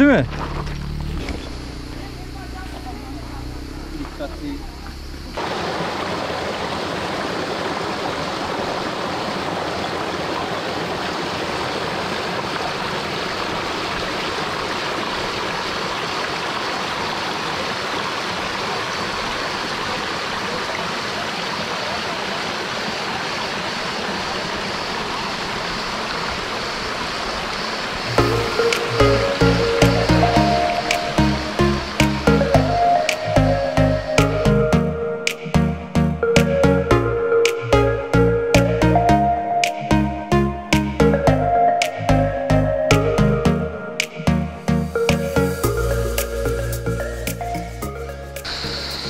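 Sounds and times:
creek water rushing over rocks: 5.4s - 34.3s, 48.4s - 49.0s
music: 28.2s - 49.0s.

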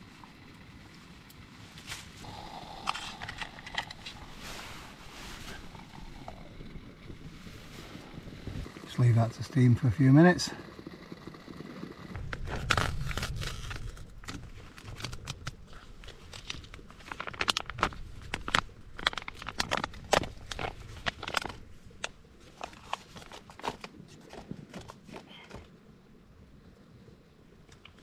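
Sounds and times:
plastic pouch crinkling: 12.4s - 24.0s.

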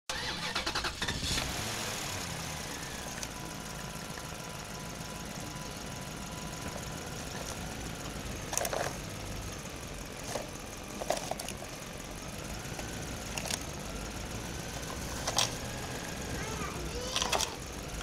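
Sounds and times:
steady engine-like hum: 0.1s - 18.0s
toy truck clicks and crackles: 6.6s - 9.1s, 10.2s - 11.8s, 12.7s - 14.0s, 14.7s - 18.0s.

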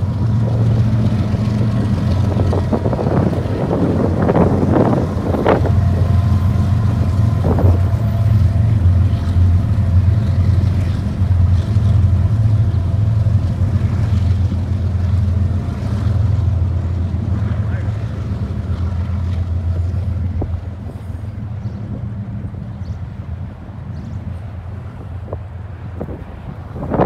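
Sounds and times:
diesel locomotive engine drone: 0.0s - 27.0s.

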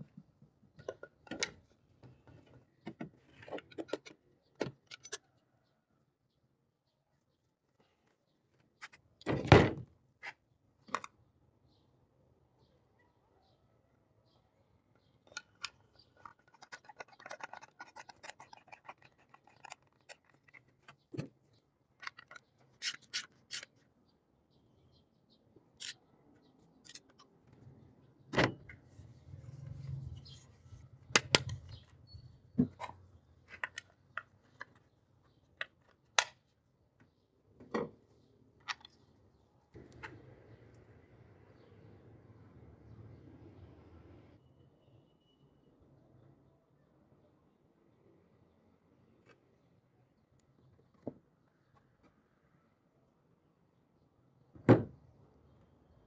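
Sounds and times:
metal parts clicking and knocking: 15.3s - 21.4s, 22.0s - 23.7s
scraping and rubbing: 15.5s - 21.1s, 28.8s - 31.8s.

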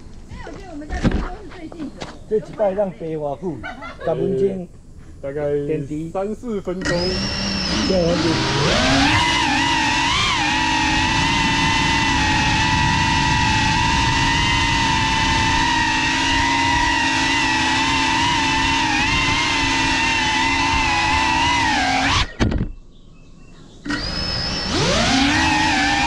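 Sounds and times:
drone motors whining: 6.7s - 22.8s, 23.5s - 26.0s.

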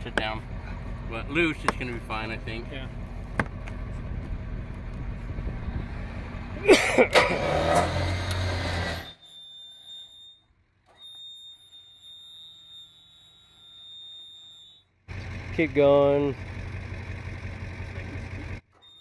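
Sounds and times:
vehicle engine running: 0.0s - 9.0s, 15.1s - 18.6s
loud squealing creak: 7.1s - 15.0s, 18.7s - 19.0s.

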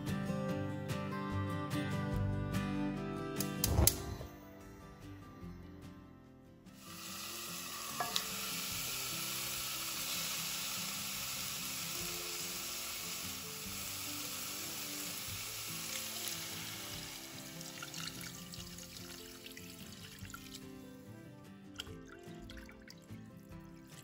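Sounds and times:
soft background music: 0.0s - 24.0s
gas stove burner hissing: 6.8s - 17.8s.

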